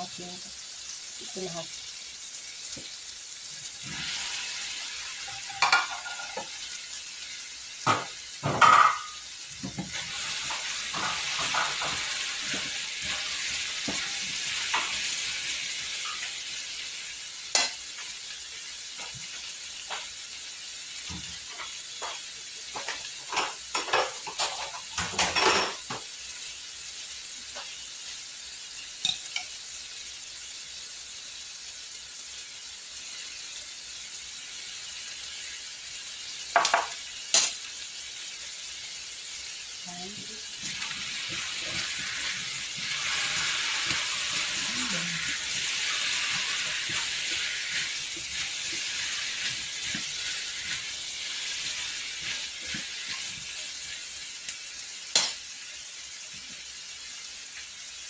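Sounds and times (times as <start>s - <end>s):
vegetables sizzling in a wok: 0.0s - 58.0s
utensil scraping a pan: 9.8s - 15.0s, 40.6s - 54.1s.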